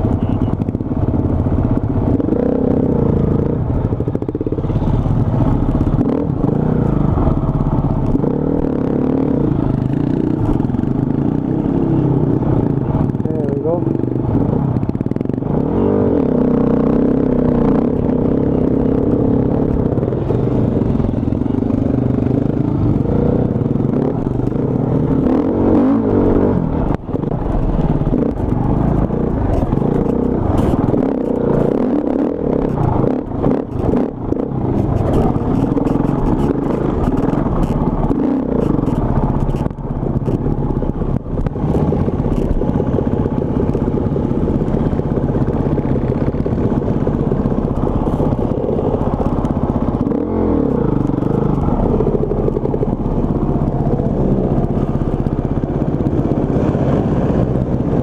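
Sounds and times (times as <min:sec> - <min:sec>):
bike rattling over rough ground: 0:26.8 - 0:58.0.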